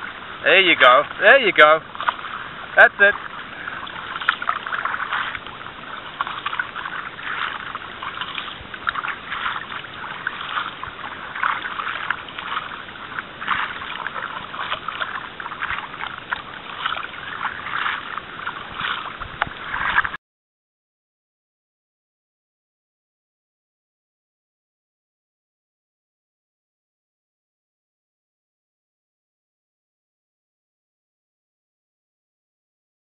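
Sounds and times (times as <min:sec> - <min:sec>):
paddle splashing in water: 0:00.0 - 0:20.2.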